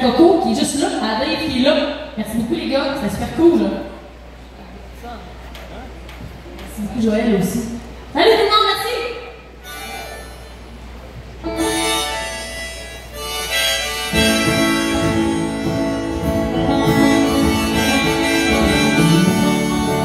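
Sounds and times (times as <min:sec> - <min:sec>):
acoustic guitar: 0:11.4 - 0:20.0
held melody notes: 0:11.4 - 0:20.0.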